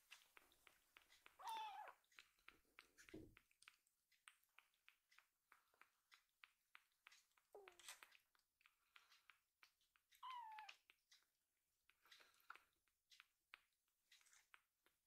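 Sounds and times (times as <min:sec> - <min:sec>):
kitten suckling with wet clicks: 0:00.0 - 0:15.0
kitten meow: 0:01.4 - 0:02.0, 0:10.2 - 0:10.8.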